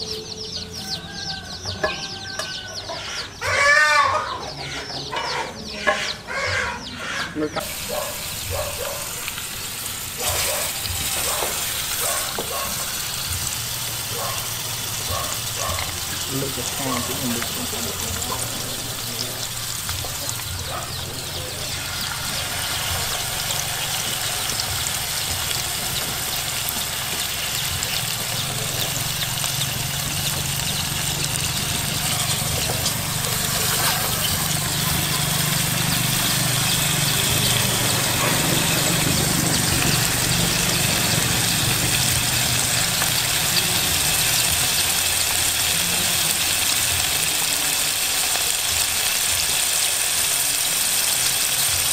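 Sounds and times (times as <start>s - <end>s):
low engine-like drone: 13.3s - 48.2s.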